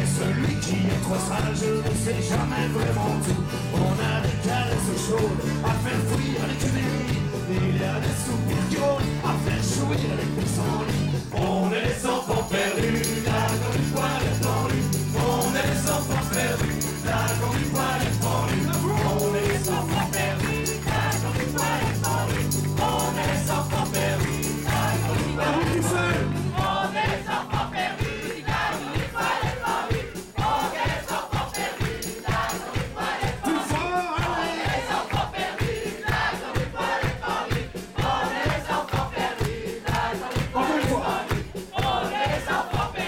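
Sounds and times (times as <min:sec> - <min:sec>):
folk-rock band playing: 0:00.0 - 0:31.1
fast kick-drum beat: 0:00.0 - 0:43.0.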